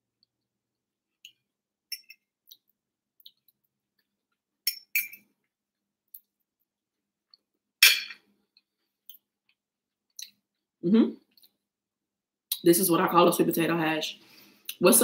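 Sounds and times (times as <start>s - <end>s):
fork clinking on ceramic plate: 4.6s - 5.2s, 7.8s - 8.2s.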